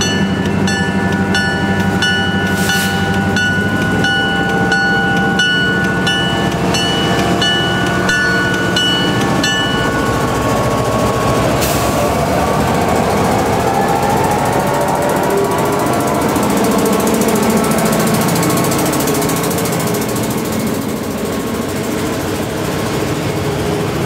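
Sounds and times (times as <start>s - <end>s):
diesel locomotive engines: 0.0s - 24.0s
locomotive bell dinging: 0.0s - 24.0s
rising whine: 0.0s - 24.0s
hiss: 2.5s - 3.2s.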